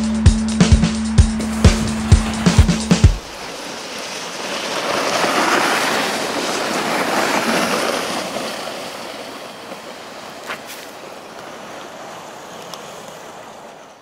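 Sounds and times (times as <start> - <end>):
sled sliding over snow: 1.4 - 14.0.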